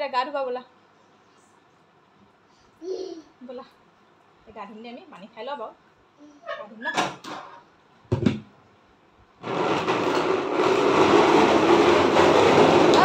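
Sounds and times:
plastic stool scraping on tiles: 0:09.4 - 0:13.0.

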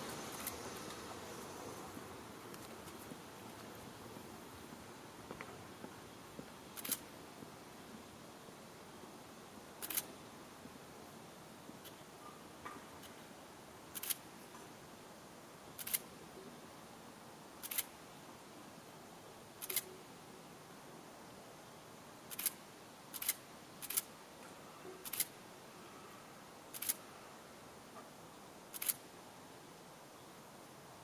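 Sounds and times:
faint steady hiss: 0:00.0 - 0:31.0.

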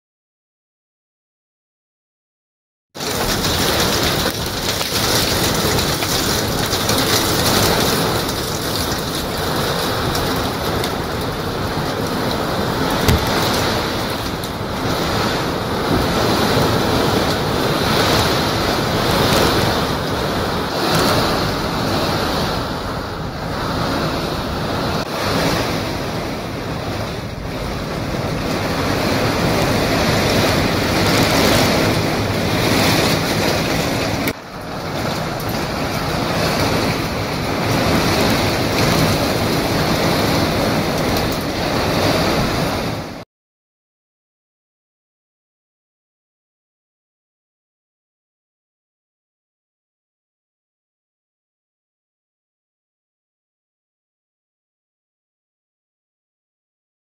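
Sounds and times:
heavy rain: 0:03.0 - 0:43.2
storm wind gusting through trees: 0:03.0 - 0:43.2
wind buffeting microphone: 0:03.2 - 0:43.2.

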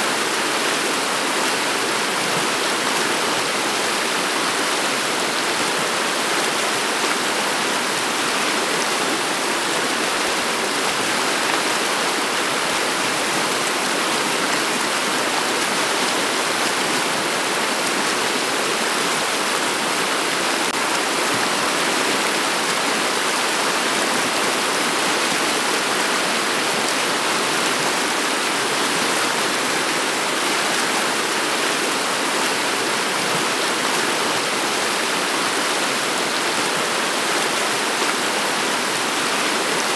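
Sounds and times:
river babbling over cobbles: 0:00.1 - 0:39.9.

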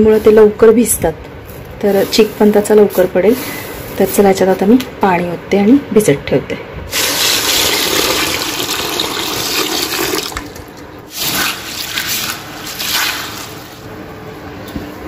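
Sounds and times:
water pouring into bucket: 0:06.9 - 0:13.8.

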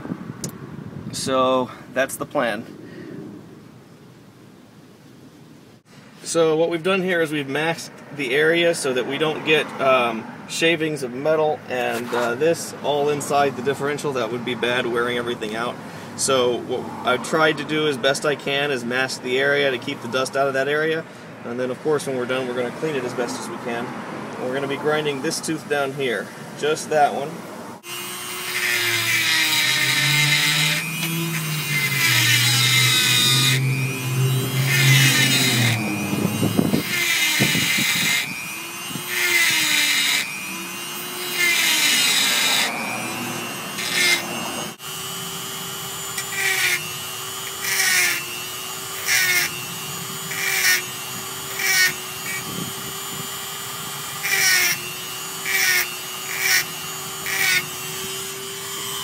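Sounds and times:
rotary tool grinding metal: 0:27.8 - 0:59.0.

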